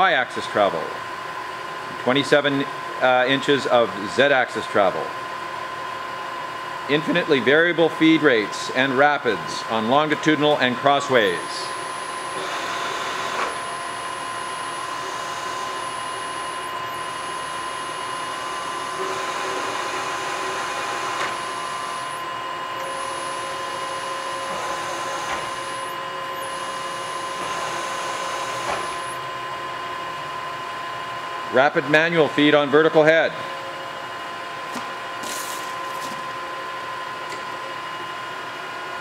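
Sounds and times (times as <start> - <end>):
milling machine motor whine: 4.8 - 31.6.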